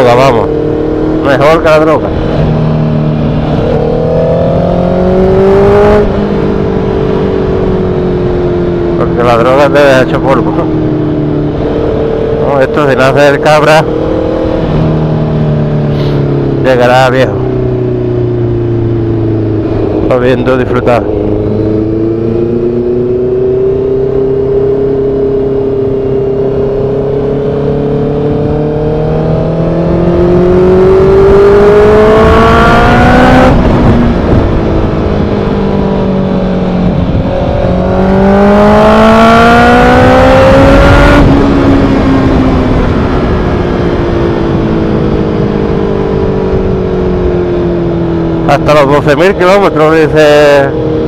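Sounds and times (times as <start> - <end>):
motorcycle engine revving: 0.0 - 51.0.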